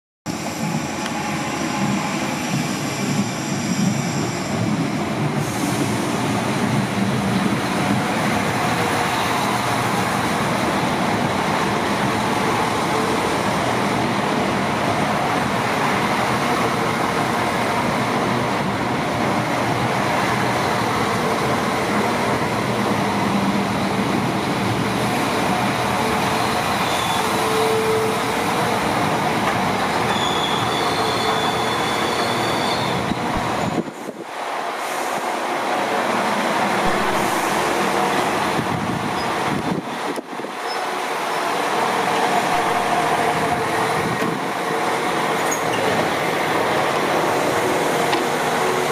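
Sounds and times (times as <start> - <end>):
diesel railcar engine drone: 0.3 - 48.9
train wheels rumbling on rails: 0.3 - 48.9
high brake squeal: 26.4 - 28.3, 30.0 - 33.1, 45.4 - 45.9.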